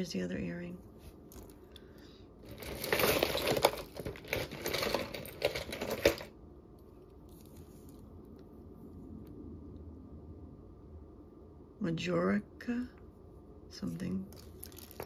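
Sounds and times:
jewelry clinking: 1.2s - 6.3s, 14.3s - 15.0s.

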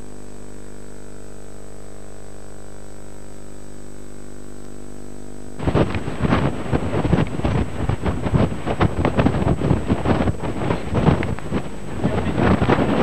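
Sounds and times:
electrical hum with whine: 0.0s - 13.0s
wind buffeting microphone: 5.6s - 13.0s.

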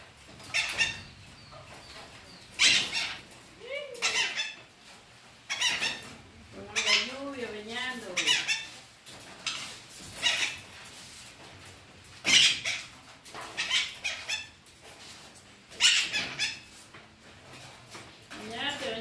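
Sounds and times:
parrot squawking: 0.4s - 1.2s, 2.5s - 3.3s, 3.9s - 4.6s, 5.5s - 6.1s, 6.7s - 7.4s, 8.0s - 8.8s, 9.4s - 10.7s, 12.2s - 14.6s, 15.7s - 16.7s.

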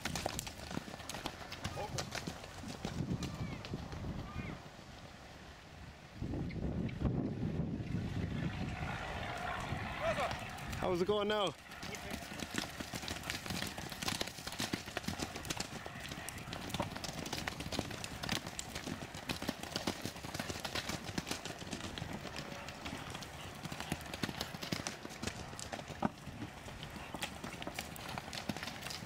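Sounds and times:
horses cantering hoofbeats: 0.0s - 4.8s, 8.1s - 29.0s.

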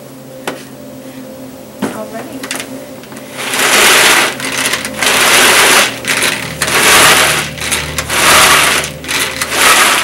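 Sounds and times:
pull-cord chopper whirring: 3.3s - 10.0s.

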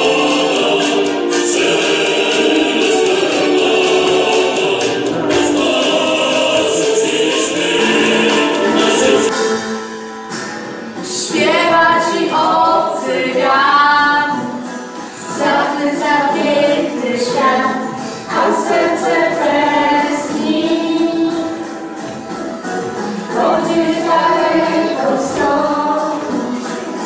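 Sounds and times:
musical accompaniment: 0.0s - 27.0s.

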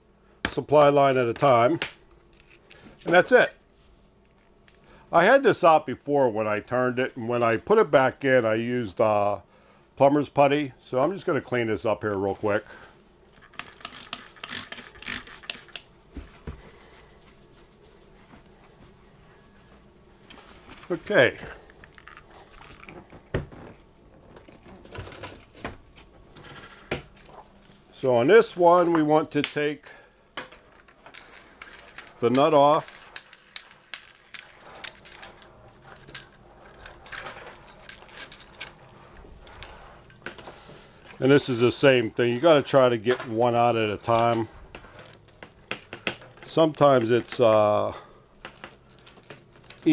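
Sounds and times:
spray bottle squirts: 14.0s - 15.8s.

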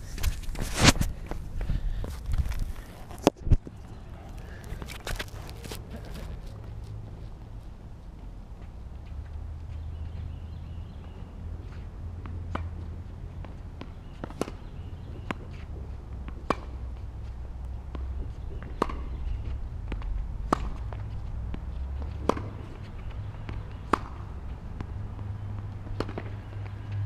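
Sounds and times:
tennis ball bouncing: 11.0s - 27.0s
racquet striking tennis ball: 12.2s - 19.2s, 19.9s - 26.8s.

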